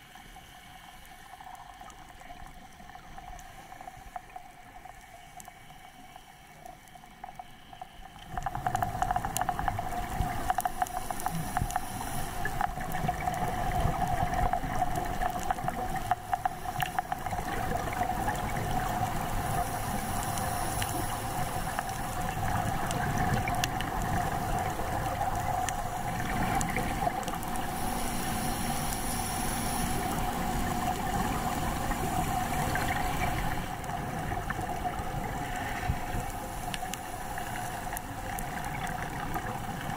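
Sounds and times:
underwater droning hum: 0.0s - 39.9s
even hiss: 8.7s - 34.1s.

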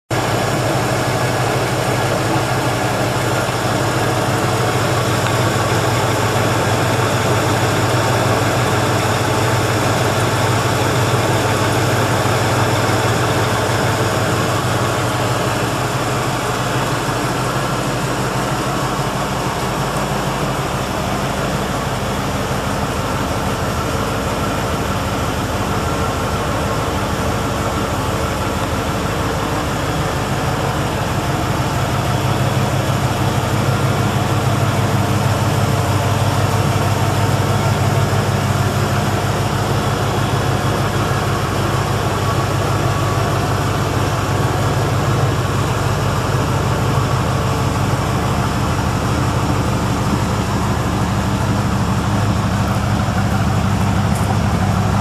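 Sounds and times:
car engine idling: 0.0s - 55.0s.

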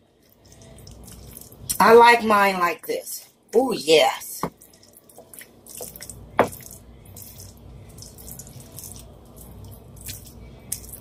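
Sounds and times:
spoon squelching and scraping in pan: 4.5s - 11.0s.

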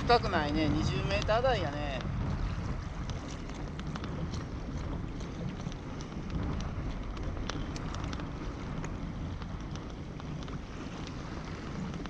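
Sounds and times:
waves lapping against kayak: 0.0s - 12.0s
wind buffeting microphone: 0.0s - 12.0s
faint ticks: 3.0s - 12.0s.

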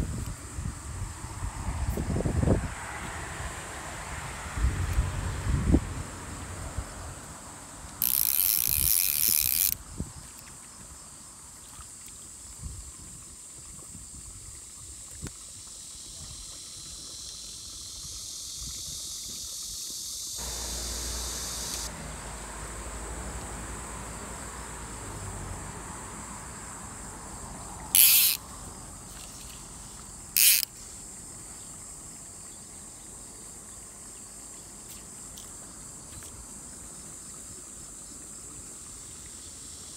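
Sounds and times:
insect high drone: 0.0s - 12.9s, 14.8s - 39.9s
insects buzzing: 6.0s - 12.8s, 14.1s - 39.9s
thin high whine: 20.4s - 25.1s.

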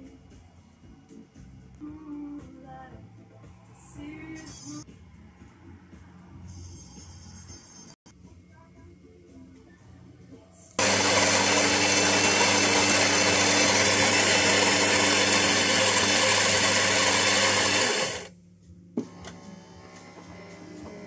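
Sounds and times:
coffee grinder grinding beans: 10.8s - 18.3s.

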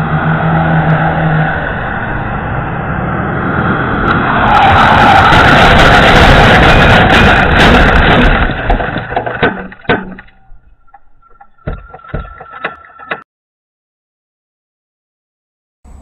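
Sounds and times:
crunching metal and scraping: 4.7s - 13.2s
sharp knocks: 6.7s - 13.2s.

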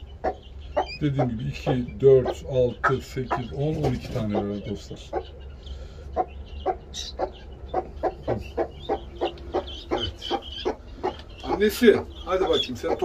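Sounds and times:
hen clucking: 0.0s - 13.0s.

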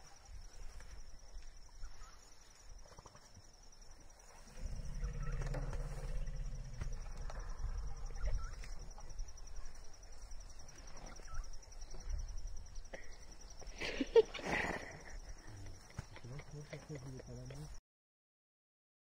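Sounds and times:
insect trill: 0.0s - 17.8s
elephant low rumbling: 4.3s - 9.4s
loud elephant call: 4.5s - 7.5s.

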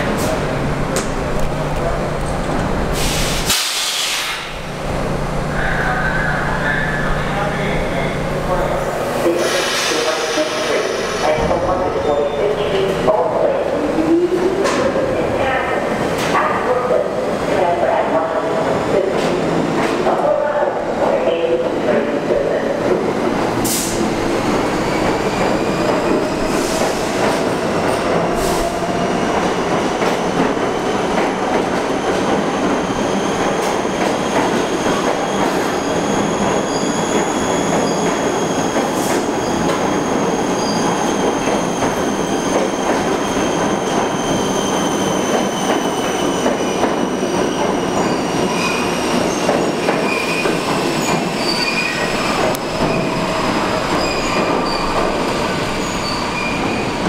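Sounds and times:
subway train wheels rumbling: 0.0s - 57.0s
high wheel squeal: 39.4s - 46.7s, 47.8s - 57.0s.

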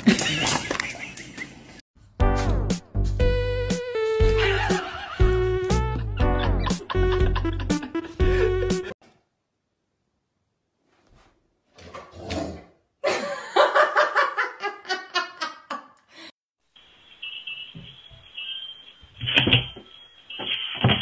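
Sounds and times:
person laughing: 0.0s - 1.8s, 4.2s - 9.0s, 13.0s - 16.0s.

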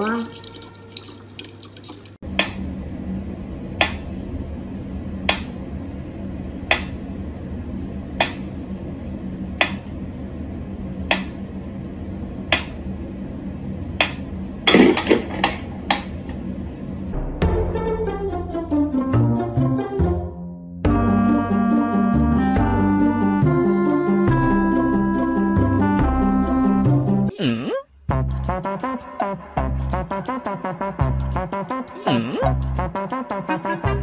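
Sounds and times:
low steady hum: 0.0s - 17.3s.

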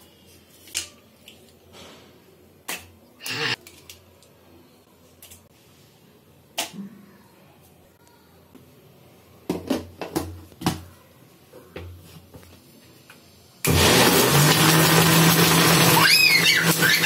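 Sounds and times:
mixer grinder motor running: 13.7s - 17.0s.

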